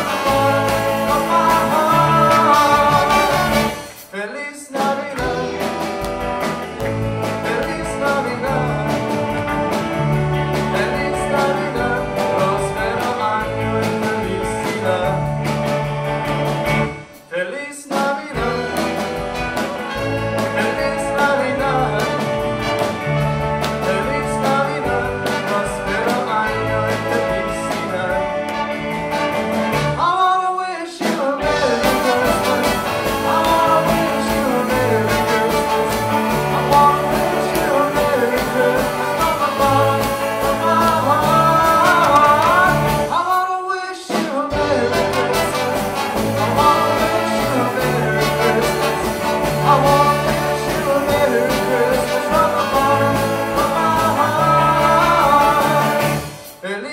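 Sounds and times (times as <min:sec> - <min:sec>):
rockabilly band playing: 0:00.0 - 0:56.6.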